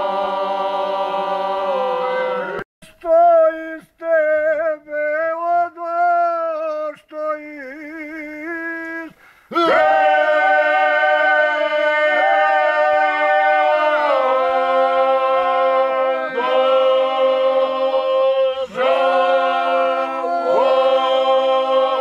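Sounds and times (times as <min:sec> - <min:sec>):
man singing alone: 0:02.8 - 0:09.7
men singing together: 0:09.0 - 0:22.0.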